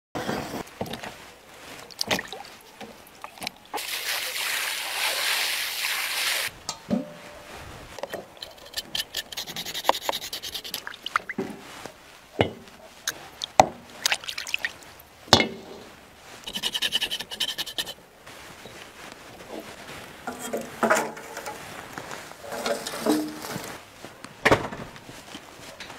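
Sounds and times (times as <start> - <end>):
water sloshing and splashing: 0.8 - 6.6, 10.0 - 11.9, 13.3 - 15.1, 20.3 - 23.8
knife scraping hoof: 8.0 - 11.4, 16.4 - 18.0.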